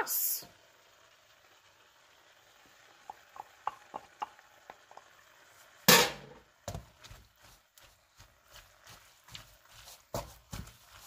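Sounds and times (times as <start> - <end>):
wooden spatula tapping frying pan: 3.0 - 5.2.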